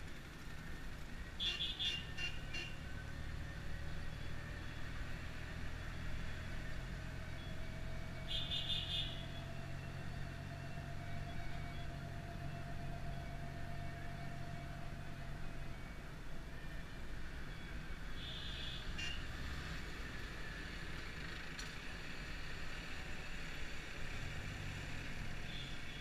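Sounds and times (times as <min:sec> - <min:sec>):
car engine and road noise: 0:00.0 - 0:26.0
rapid car horn beeps: 0:01.4 - 0:02.8, 0:08.3 - 0:09.2, 0:18.2 - 0:19.2.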